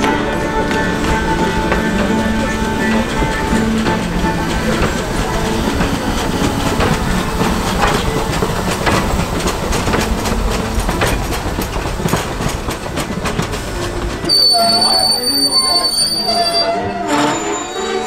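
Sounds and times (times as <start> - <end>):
train wheels rumbling and clacking: 0.0 - 18.0
high wheel squeal: 14.2 - 18.0.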